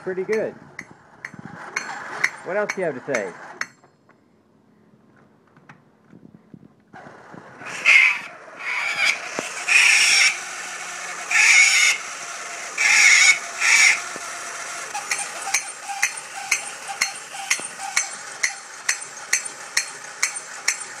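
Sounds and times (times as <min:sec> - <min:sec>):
toy motor starting: 0:07.0 - 0:21.0
shrill squeaker screeches: 0:07.6 - 0:10.4, 0:11.2 - 0:12.0, 0:12.8 - 0:14.1, 0:14.9 - 0:18.6
toy cymbals clashing: 0:14.9 - 0:21.0.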